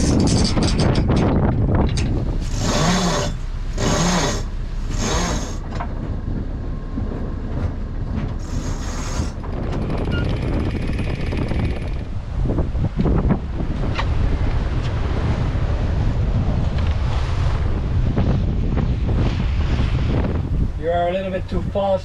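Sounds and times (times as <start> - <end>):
wind buffeting microphone: 0.0 - 22.0
water rushing past hull: 10.9 - 22.0.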